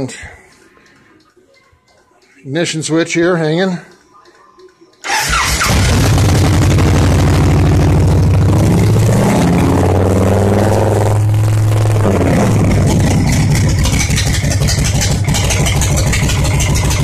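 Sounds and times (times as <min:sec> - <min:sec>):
motorcycle engine running loudly: 0:05.2 - 0:17.0.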